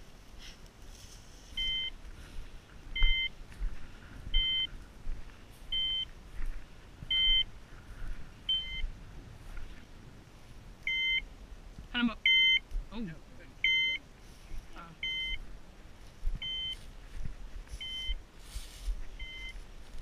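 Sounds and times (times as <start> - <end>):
beeper collar beeps: 1.6 - 2.0, 3.0 - 3.4, 4.3 - 4.7, 5.7 - 6.1, 7.1 - 7.5, 8.5 - 8.8, 10.9 - 11.3, 12.2 - 12.7, 13.6 - 14.0, 15.0 - 15.4, 16.4 - 16.8, 17.8 - 18.2, 19.2 - 19.6.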